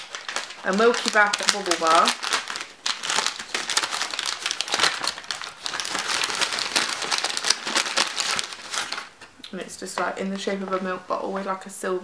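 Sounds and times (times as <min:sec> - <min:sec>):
paper bag crinkling: 0:00.0 - 0:09.1.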